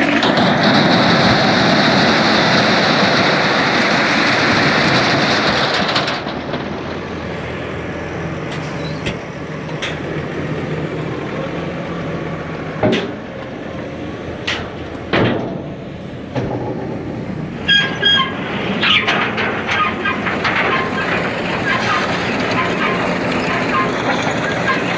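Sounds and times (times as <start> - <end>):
short high tones: 8.5 - 9.6
stone picker machine running: 8.5 - 9.9.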